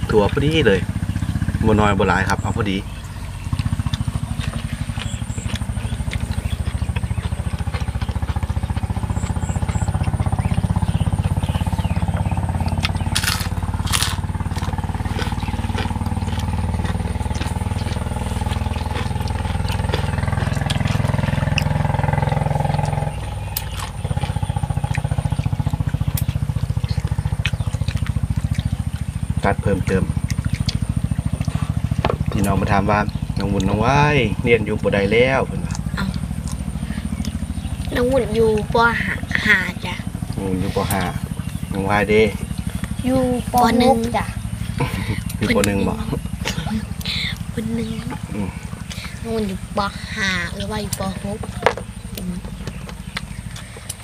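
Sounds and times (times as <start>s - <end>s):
chewing: 2.1s - 54.0s
sharp clicks: 18.0s - 31.6s.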